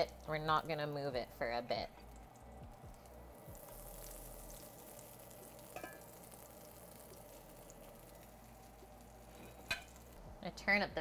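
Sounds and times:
cutlets sizzling in hot oil: 0.0s - 10.8s.

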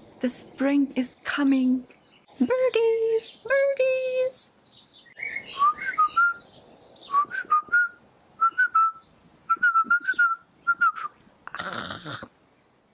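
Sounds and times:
woman whistling bird-like chirps: 5.5s - 6.4s, 7.1s - 11.2s
breathy vocal burst: 11.5s - 12.3s.

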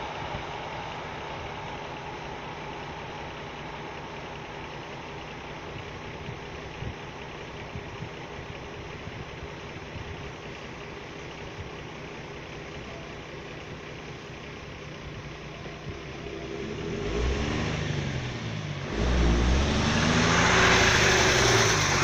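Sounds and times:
truck engine revving: 16.2s - 22.0s.

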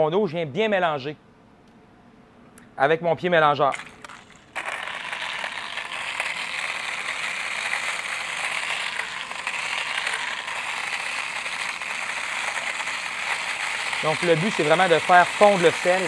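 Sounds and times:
immersion blender whirring in water: 3.8s - 16.0s.

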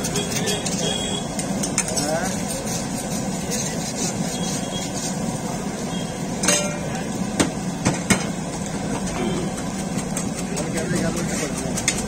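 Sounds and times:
spatula clanking on griddle: 0.0s - 2.6s, 6.4s - 12.0s
oil sizzling: 0.0s - 12.0s.

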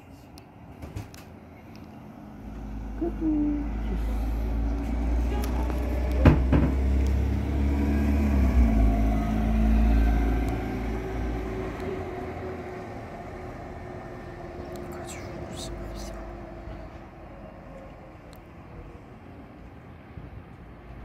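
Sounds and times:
bus engine rumbling past: 1.4s - 21.0s
sharp knocks: 6.2s - 6.8s.

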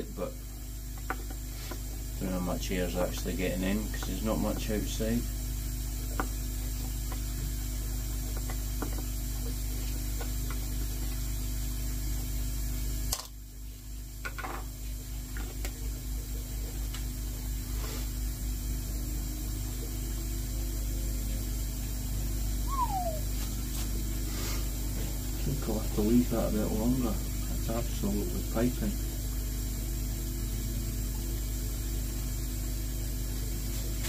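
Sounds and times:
slowly pulsing hum: 0.0s - 34.0s
machinery humming: 15.7s - 34.0s.

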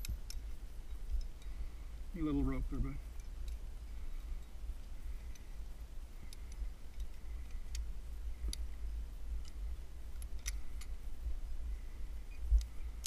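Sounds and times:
carabiners clicking: 6.2s - 8.8s, 9.4s - 11.0s.

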